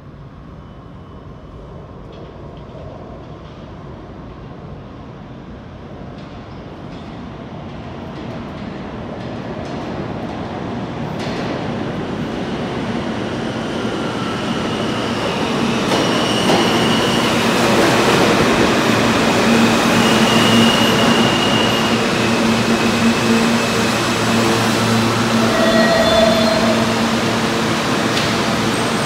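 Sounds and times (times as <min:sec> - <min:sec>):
train wheels rumbling on rails: 0:01.7 - 0:29.0
high wheel squeals: 0:19.9 - 0:29.0.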